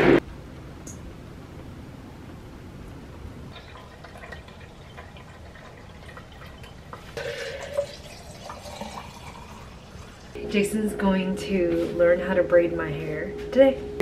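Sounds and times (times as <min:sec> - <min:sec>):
liquid trickling and dripping: 0:03.5 - 0:10.4.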